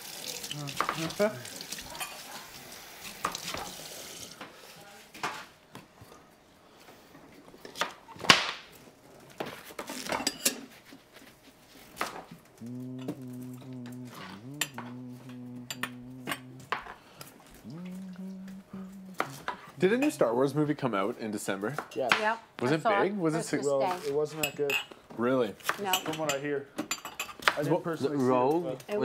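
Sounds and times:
pots and cutlery clinking: 1.9 - 2.4, 9.8 - 10.7
steady low hum: 12.5 - 16.8.

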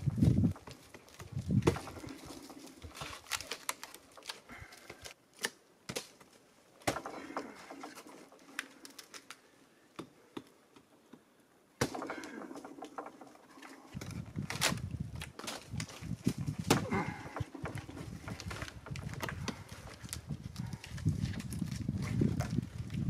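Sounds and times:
hands gripping tree trunk: 0.0 - 23.0.

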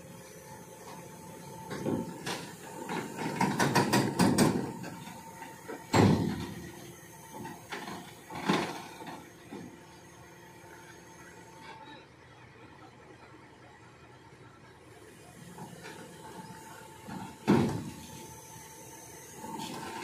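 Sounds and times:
excavator clanking and knocking: 0.8 - 9.8, 15.6 - 18.3.

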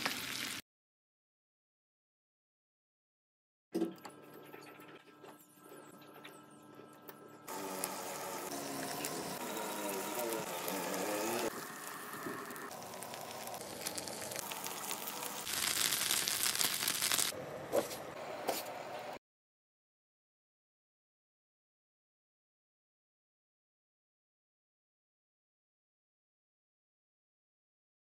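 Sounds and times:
meat sizzling in a frying pan: 0.0 - 0.6, 7.5 - 17.3.

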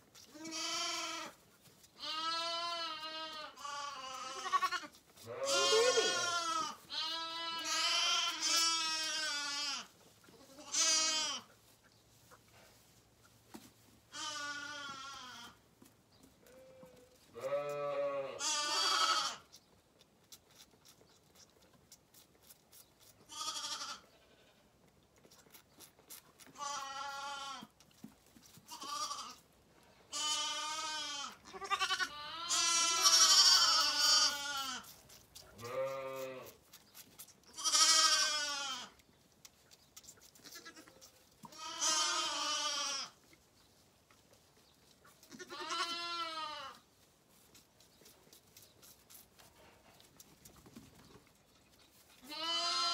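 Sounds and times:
lambs bleating: 0.2 - 11.5, 14.1 - 15.6, 16.5 - 19.5, 23.3 - 24.6, 26.5 - 27.7, 28.7 - 29.4, 30.1 - 36.6, 37.5 - 39.0, 40.4 - 43.2, 45.2 - 46.8, 52.2 - 52.9.

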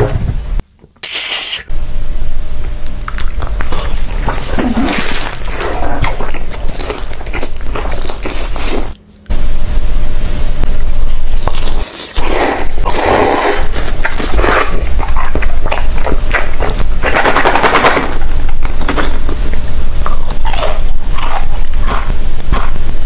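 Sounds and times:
crisp food crunching: 2.8 - 9.0, 11.1 - 22.8.

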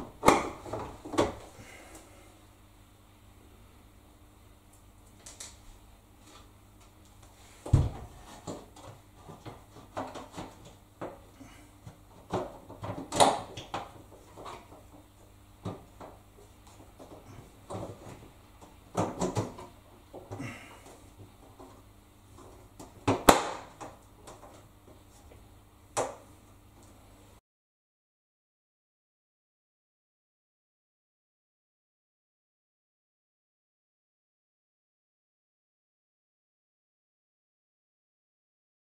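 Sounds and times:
heavy thump: 7.7 - 8.2.

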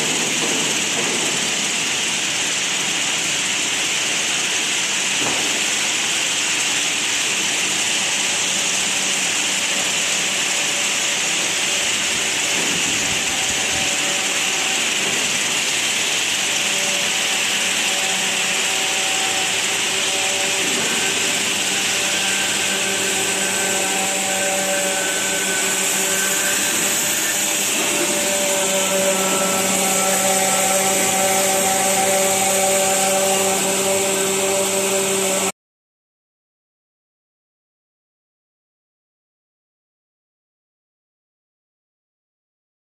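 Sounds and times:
machine noise with hiss: 0.0 - 35.5
motor hum tones: 5.7 - 35.5.

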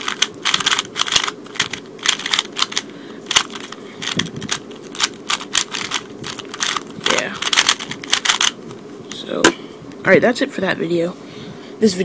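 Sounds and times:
speed cube clicking: 0.0 - 8.6.

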